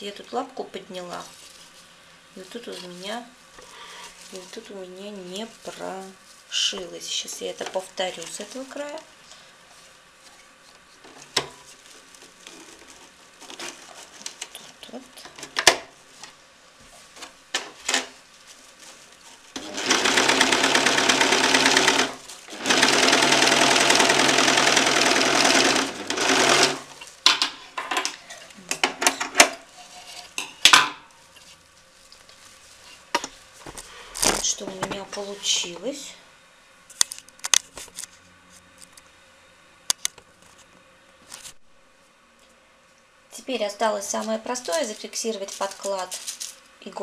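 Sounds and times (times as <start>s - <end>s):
electric sewing machine stitching: 19.6s - 27.1s.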